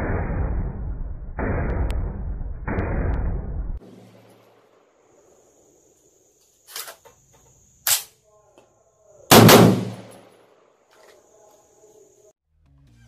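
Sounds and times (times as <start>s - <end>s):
rifle gunshots: 9.3s - 10.3s.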